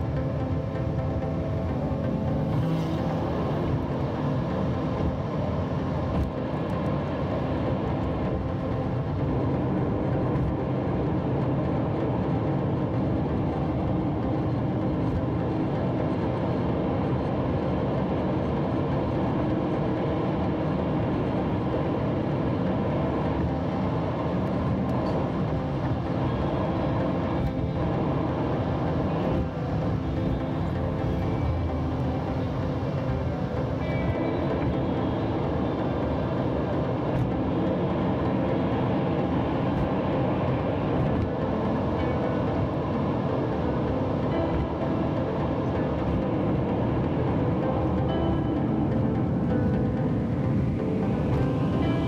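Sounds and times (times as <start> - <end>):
car engine and tyre drone: 0.0 - 52.0.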